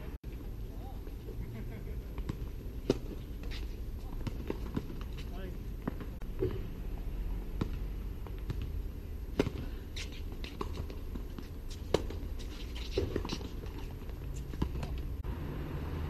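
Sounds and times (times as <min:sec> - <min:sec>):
tennis balls struck by rackets: 0:02.1 - 0:06.7, 0:07.6 - 0:15.2.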